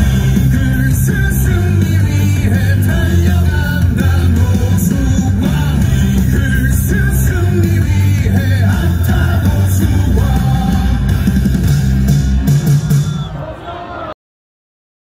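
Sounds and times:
person singing: 0:00.0 - 0:11.4
loud music with heavy bass: 0:00.0 - 0:13.5.

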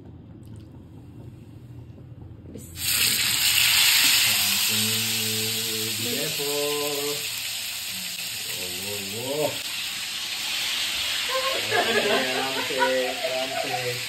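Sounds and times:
chicken sizzling in hot oil: 0:02.8 - 0:14.0.

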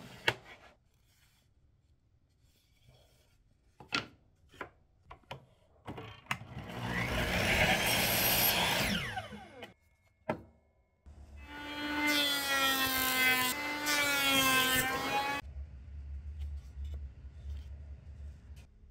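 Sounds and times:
miter saw cutting wood: 0:06.5 - 0:09.7, 0:11.4 - 0:15.4
saw blade winding down: 0:06.6 - 0:09.7.

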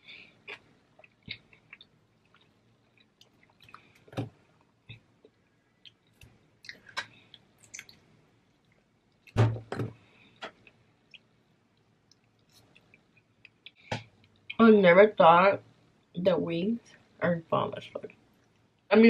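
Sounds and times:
wet mouth clicks: 0:05.8 - 0:08.0
thump: 0:09.4 - 0:09.9.

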